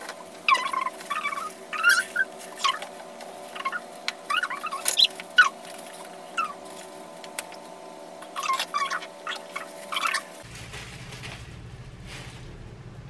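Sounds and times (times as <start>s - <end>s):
steady hum: 0.0s - 13.0s
plastic gloves squeaking on bottle: 0.4s - 10.6s.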